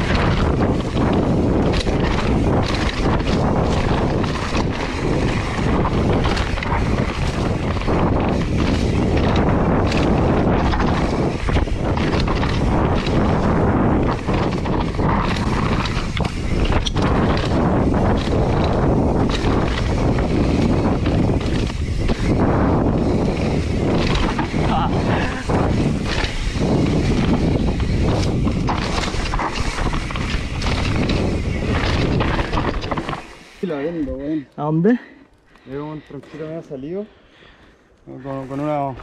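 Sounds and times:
wind on microphone: 0:00.0 - 0:34.2
bike knocking and rattling: 0:00.0 - 0:37.0
bike tyres on dirt: 0:00.0 - 0:39.0.

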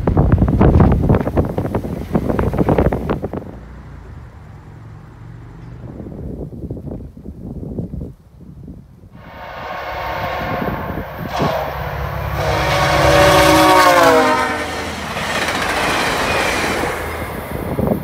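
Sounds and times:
wheels on rails: 0:00.0 - 0:06.0, 0:10.6 - 0:18.0
diesel engine rumble: 0:00.0 - 0:13.8
train horn: 0:09.2 - 0:15.2.

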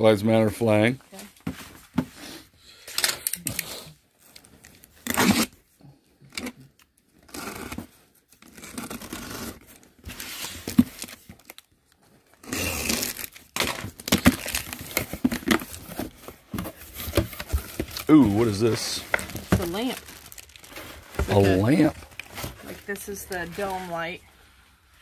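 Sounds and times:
packaging tearing and crinkling: 0:08.4 - 0:11.7, 0:12.3 - 0:16.2, 0:17.1 - 0:22.6.

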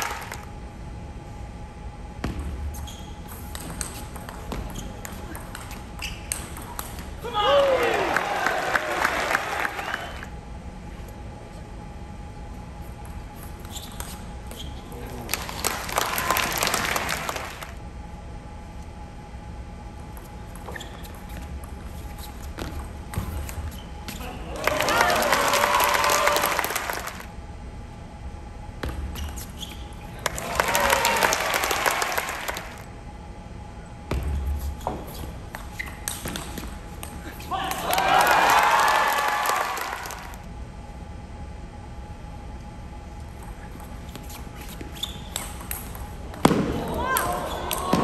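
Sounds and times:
spectators applauding: 0:00.0 - 0:00.5, 0:07.6 - 0:10.3, 0:15.3 - 0:17.8, 0:24.5 - 0:27.3, 0:30.2 - 0:32.9, 0:37.7 - 0:40.4
crowd cheering and calling out: 0:07.2 - 0:10.3, 0:24.5 - 0:27.2, 0:37.5 - 0:40.4.

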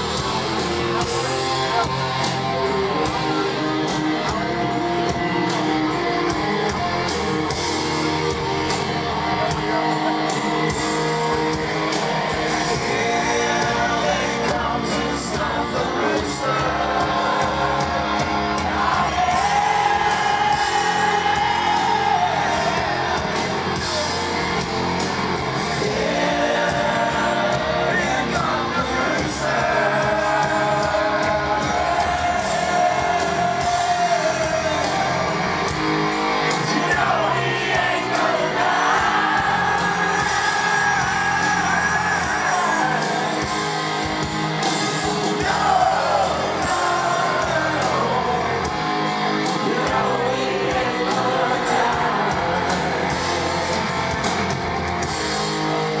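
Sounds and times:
drums: 0:00.0 - 0:56.0
electric guitars: 0:00.0 - 0:56.0
person singing: 0:07.8 - 0:24.3, 0:25.7 - 0:35.5, 0:36.5 - 0:54.3.

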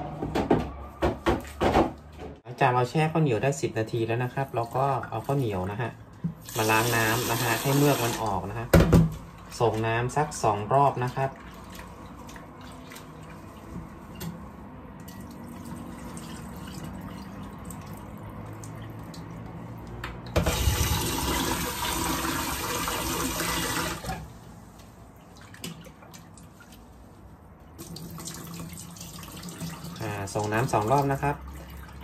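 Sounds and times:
water poured into metal sink: 0:06.4 - 0:08.6, 0:15.0 - 0:19.4, 0:20.4 - 0:24.3, 0:27.8 - 0:32.0
hands swishing rice in water: 0:09.5 - 0:14.2.

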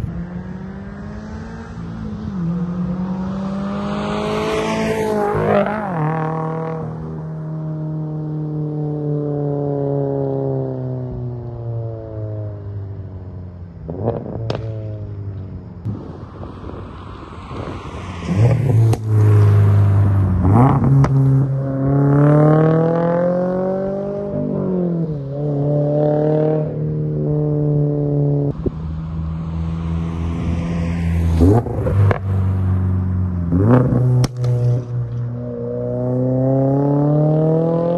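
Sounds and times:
car engine accelerating: 0:00.0 - 0:37.9
exhaust cracks: 0:33.8 - 0:35.3.

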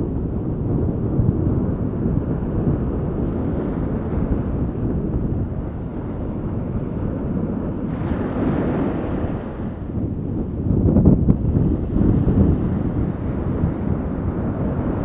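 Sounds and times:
wind buffeting microphone: 0:00.0 - 0:15.0
small waves breaking on sand: 0:05.6 - 0:09.9.

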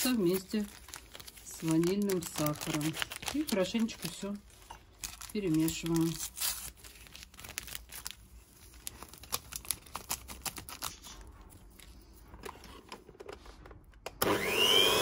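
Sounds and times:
electric hand mixer whine: 0:14.2 - 0:15.0.

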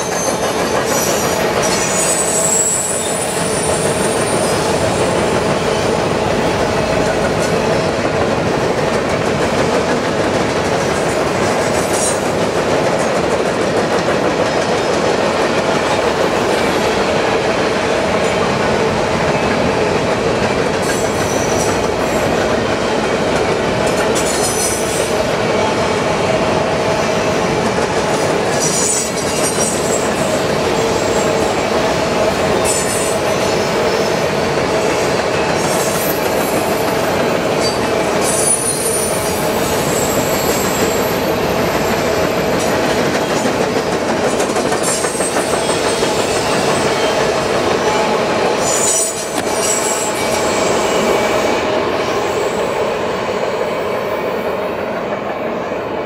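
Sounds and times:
high-pitched wheel squeals: 0:00.0 - 0:04.7
train wheels rumbling on rails: 0:00.0 - 0:56.0.

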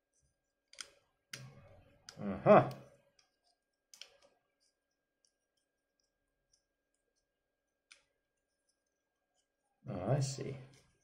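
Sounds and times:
faint plastic toy clicks: 0:00.6 - 0:09.0.

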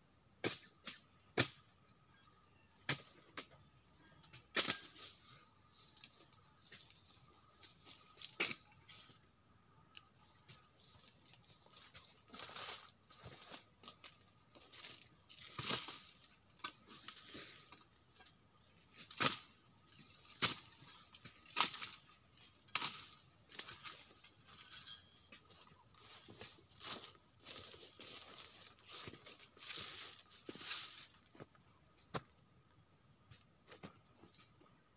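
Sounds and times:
high-pitched insect drone: 0:00.0 - 0:34.9
pruning tool chopping wood: 0:20.4 - 0:20.6.

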